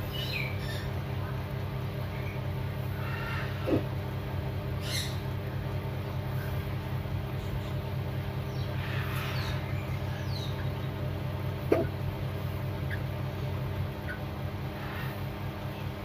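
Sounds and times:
low hum: 0.0s - 16.0s
chick peeping: 8.4s - 15.8s.

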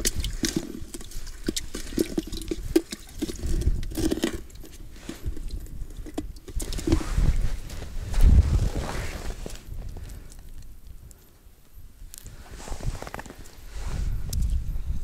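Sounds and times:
slushy ice crunching: 0.0s - 10.2s.

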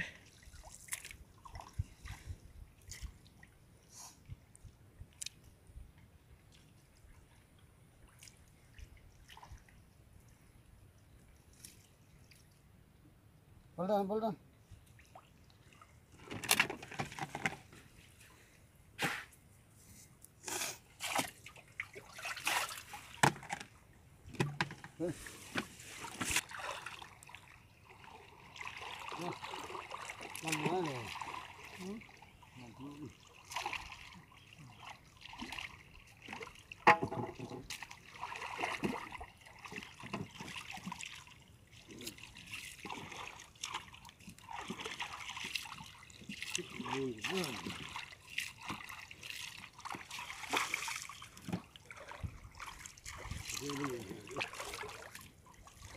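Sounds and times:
water splashing and dripping: 0.2s - 3.6s, 21.0s - 24.8s, 26.0s - 55.9s.

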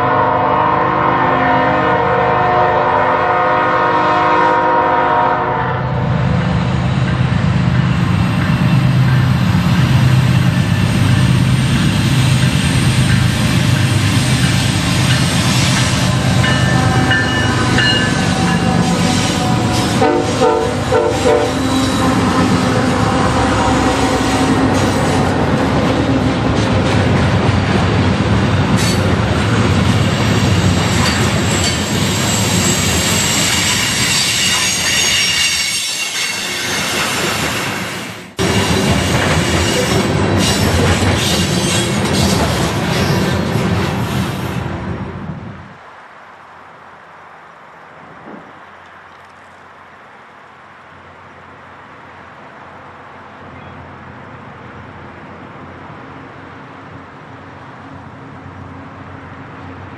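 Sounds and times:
locomotive air horn: 0.0s - 6.1s, 15.5s - 25.4s, 32.6s - 36.9s
train wheel clatter: 7.0s - 20.0s, 30.6s - 37.8s, 38.4s - 44.0s
wheel squeal: 30.9s - 37.7s.

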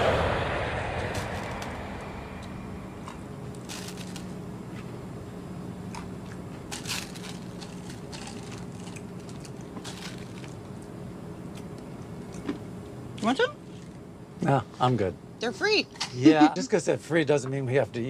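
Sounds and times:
jet cabin hum: 0.0s - 14.4s
candies being chewed: 5.9s - 10.9s.

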